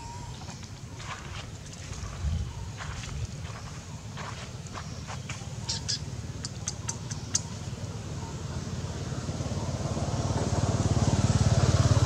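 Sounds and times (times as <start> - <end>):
engine running: 3.5 - 12.0.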